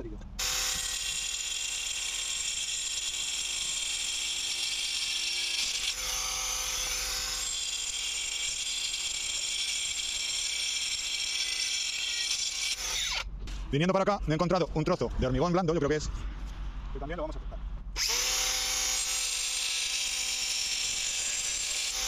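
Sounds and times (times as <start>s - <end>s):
angle grinder cutting brick: 0.4s - 13.3s, 18.0s - 22.0s.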